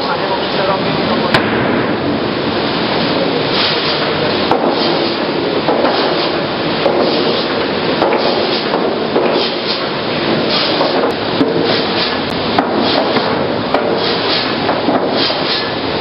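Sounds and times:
saw cutting boards: 0:03.7 - 0:15.7
sharp knocks: 0:04.5 - 0:15.6.

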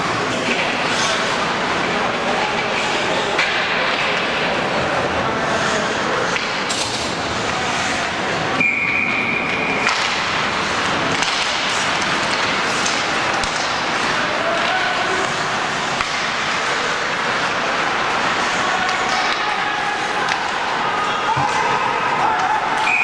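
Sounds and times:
skates on ice: 0:00.0 - 0:23.0
spectators' voices: 0:00.0 - 0:23.0
high whistle: 0:08.6 - 0:09.6, 0:22.8 - 0:23.0.

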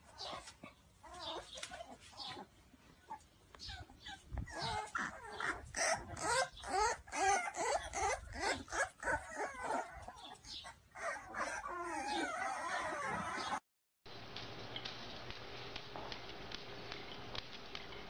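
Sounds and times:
puppies whimpering and yelping: 0:00.1 - 0:13.6.

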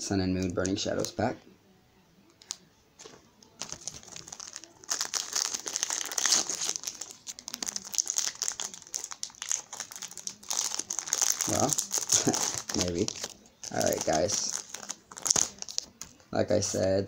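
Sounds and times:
foil wrapper crinkling and tearing: 0:03.6 - 0:16.1.

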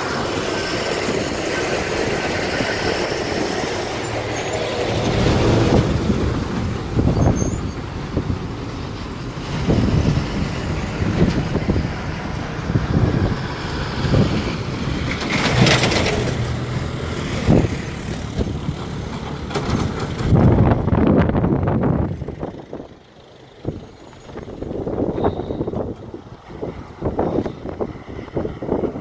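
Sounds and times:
hissing rush: 0:00.0 - 0:14.5
diesel trucks driving past: 0:00.0 - 0:29.0
tyre noise on wet road: 0:00.0 - 0:29.0.

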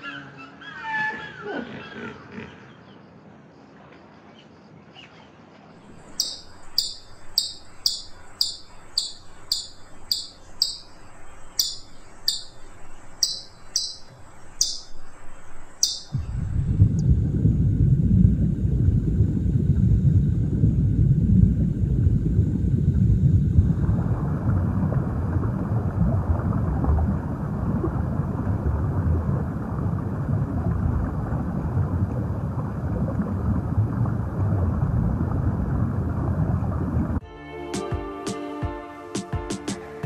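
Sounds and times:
low rumbling water: 0:05.8 - 0:37.2.

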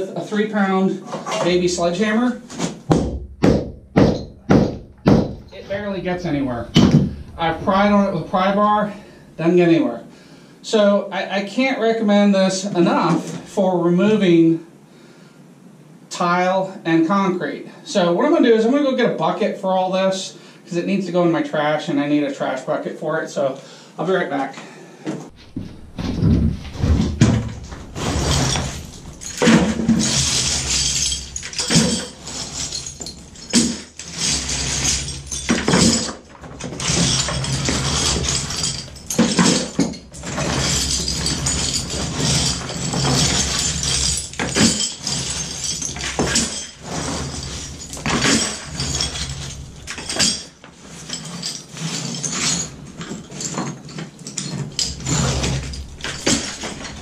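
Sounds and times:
rubble clattering into bucket: 0:25.4 - 0:57.0.

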